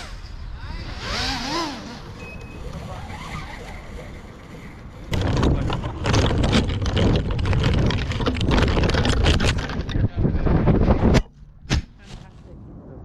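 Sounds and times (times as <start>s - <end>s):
branches and twigs rustling and cracking: 3.9s - 10.1s.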